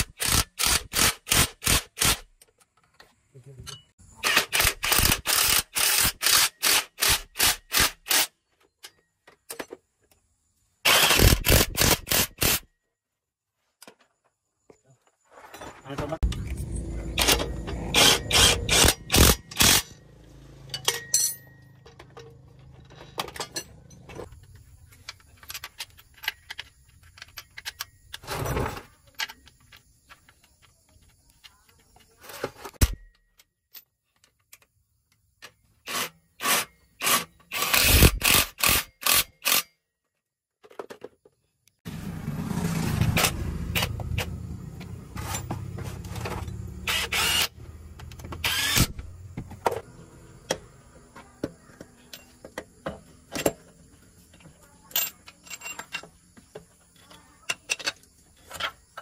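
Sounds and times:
metal hand tools clinking: 20.7s - 24.3s.

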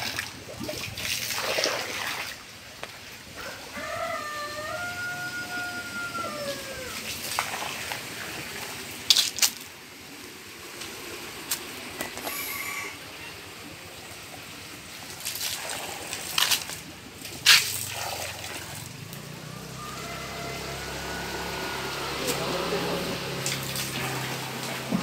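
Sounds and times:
drawn-out animal call: 3.4s - 7.1s, 18.9s - 25.0s.

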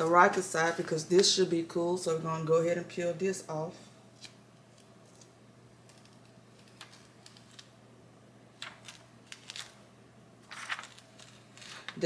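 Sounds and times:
plastic film peeling crackle: 4.2s - 7.8s, 8.6s - 9.8s, 10.4s - 12.0s.

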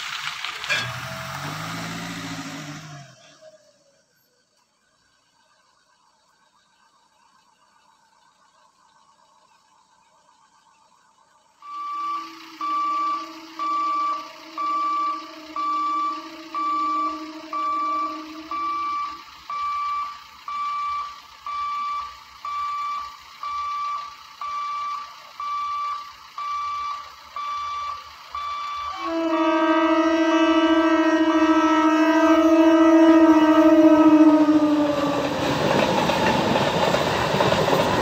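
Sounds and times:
low steady tone: 2.8s - 34.9s
level crossing alarm beeping: 11.0s - 38.0s
electric train horn: 11.6s - 19.4s, 28.7s - 35.6s.

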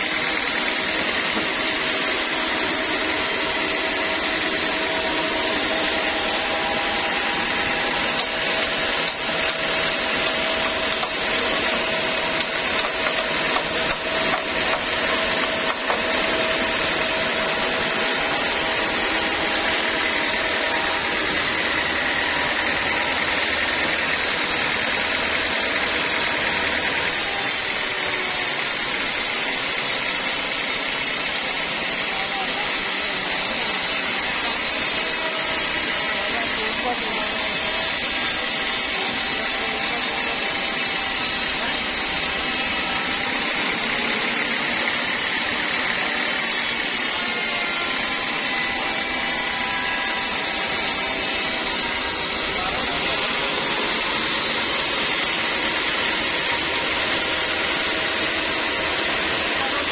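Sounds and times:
band saw blade rasping through log: 0.0s - 59.9s
machine whine: 0.0s - 59.9s.

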